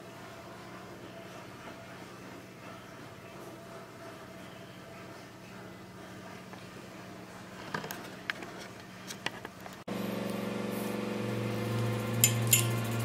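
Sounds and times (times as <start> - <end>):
metal clinks: 12.2 - 13.0.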